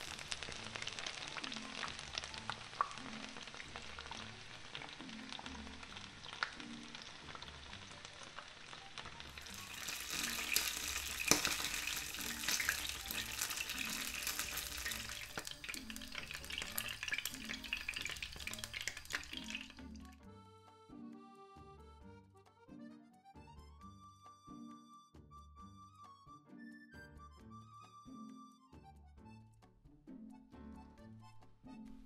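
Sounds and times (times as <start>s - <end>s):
fritters sizzling in oil: 0.0s - 20.1s
spitting oil pops: 9.4s - 19.8s.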